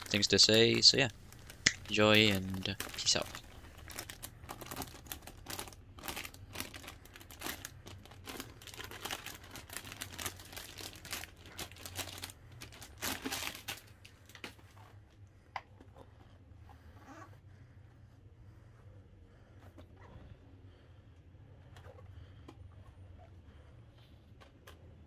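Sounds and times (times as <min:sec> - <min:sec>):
plastic film crinkling: 0:00.0 - 0:14.6.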